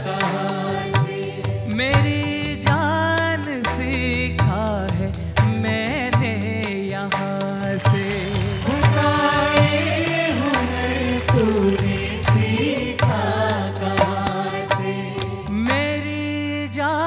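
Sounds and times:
group of singers singing: 0.0 - 2.3, 7.6 - 16.2
band with bass and percussion: 0.0 - 16.4.

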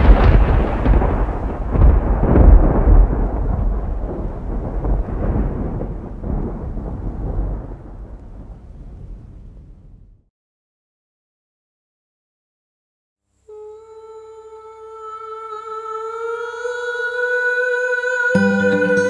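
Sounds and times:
thunder rumbling: 0.0 - 10.3.

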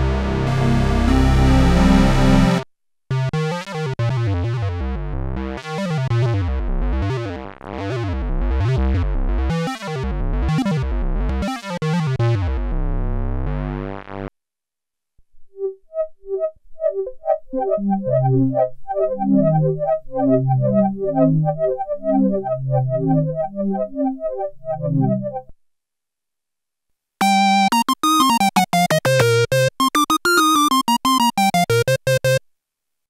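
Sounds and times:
synth bass: 0.0 - 3.4, 4.1 - 11.4, 12.2 - 14.3, 15.6 - 25.5, 27.2 - 32.4
plucked synthesizer notes: 0.0 - 14.3, 15.5 - 25.5, 27.2 - 32.4
synthesizer pad swelling: 17.6 - 25.4.

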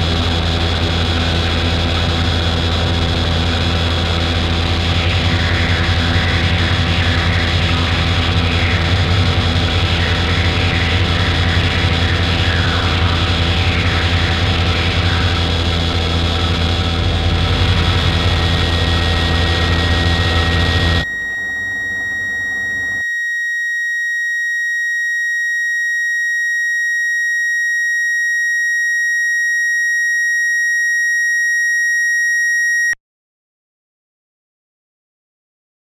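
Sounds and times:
harsh drone with low hum: 0.0 - 23.0
high-pitched electronic tone: 0.0 - 24.4.

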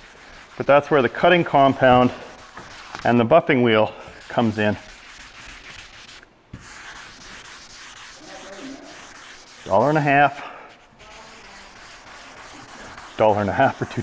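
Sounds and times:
man's voice: 9.7 - 10.4
wet sanding hiss: 11.0 - 14.0.

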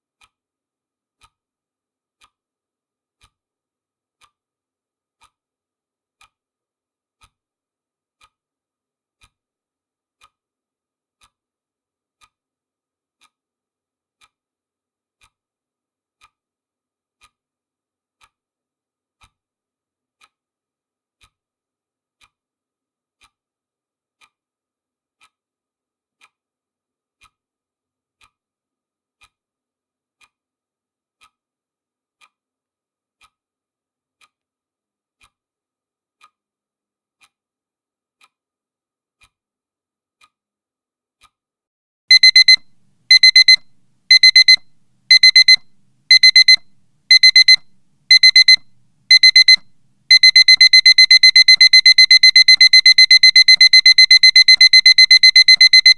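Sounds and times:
clock ticking: 42.1 - 55.9
digital alarm clock beeping: 42.1 - 55.9.

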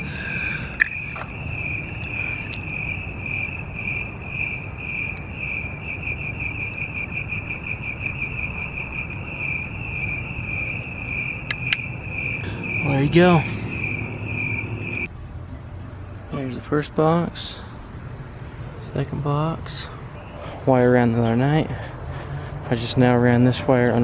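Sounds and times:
crickets chirping: 0.0 - 15.1, 20.0 - 20.6.

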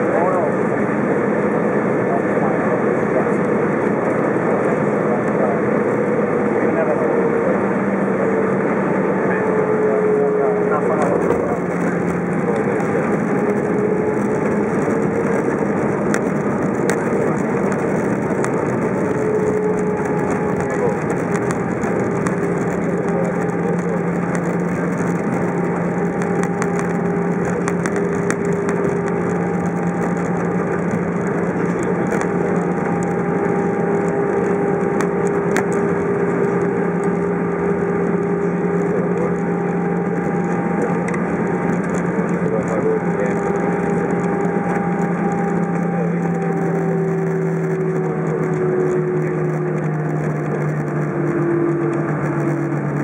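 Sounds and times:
airplane cabin engine rumble: 0.0 - 53.0
constant hums: 0.0 - 53.0.

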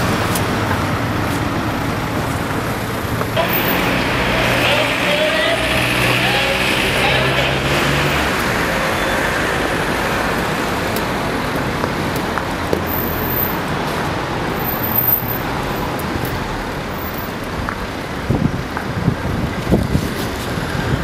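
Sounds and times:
passing cars: 0.0 - 21.0.

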